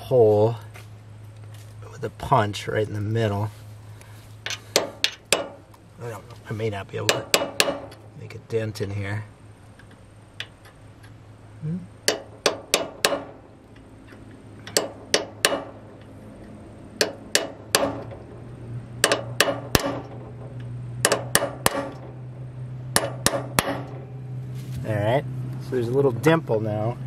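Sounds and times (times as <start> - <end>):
hammer tapping metal punch: 4.5 - 5.6, 7.0 - 8.0, 12.0 - 13.4, 14.1 - 16.1, 17.0 - 18.2, 19.0 - 22.2, 22.9 - 24.0.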